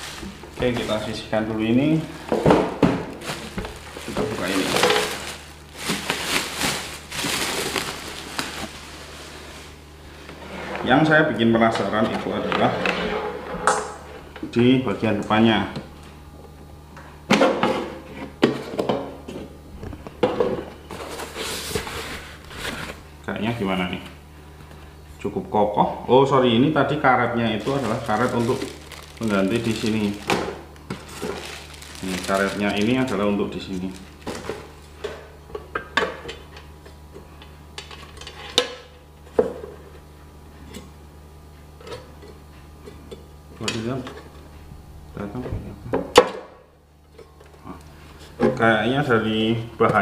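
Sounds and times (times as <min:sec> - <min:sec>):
foam packing sheet rustling: 0:00.0 - 0:01.3, 0:03.2 - 0:09.9, 0:27.4 - 0:35.0.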